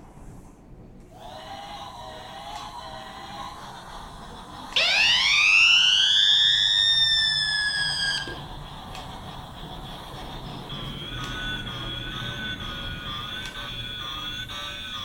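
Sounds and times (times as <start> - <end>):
electronic train whistle: 4.7 - 8.7, 9.6 - 15.0.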